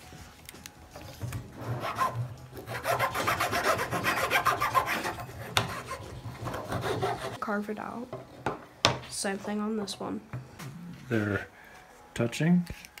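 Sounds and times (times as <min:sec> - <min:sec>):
knife scraping wooden stick: 0:01.8 - 0:07.4.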